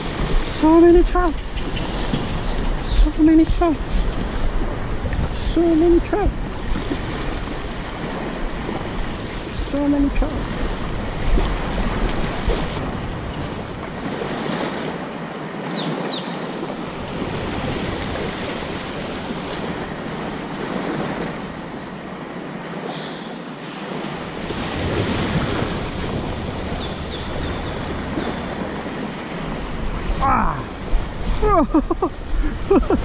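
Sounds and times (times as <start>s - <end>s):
small waves lapping on sand: 0.0s - 33.0s.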